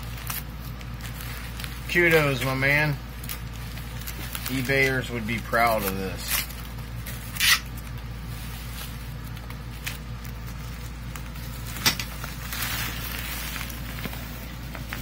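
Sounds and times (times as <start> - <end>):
bubble wrap crinkling: 0.0 - 15.0
packing peanuts rustling: 0.0 - 15.0
steady low hum: 0.0 - 15.0.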